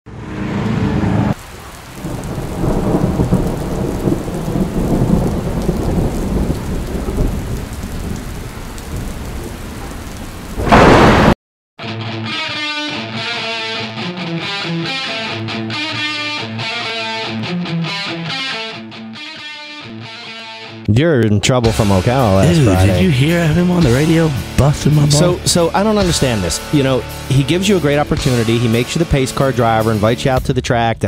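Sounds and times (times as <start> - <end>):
rolling thunder: 0.8 - 11.4
loud thunderclap: 1.2 - 11.4
rain: 1.3 - 11.4, 22.4 - 25.9
guitar music: 11.8 - 30.2.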